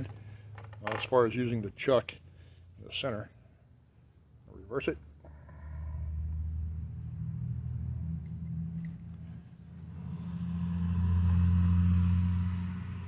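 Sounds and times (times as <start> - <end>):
low steady rumble: 0.0 - 13.0.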